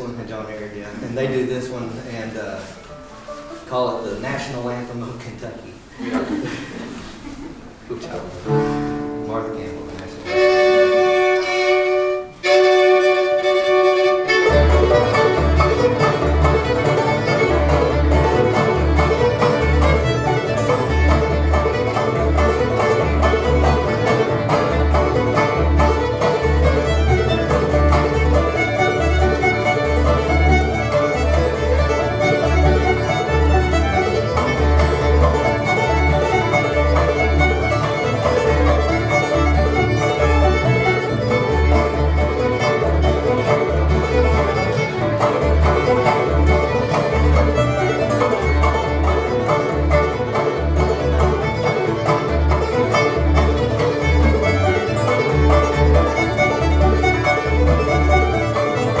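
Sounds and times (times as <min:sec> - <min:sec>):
string band playing fiddle tune: 0:00.0 - 0:05.8, 0:06.7 - 0:59.0.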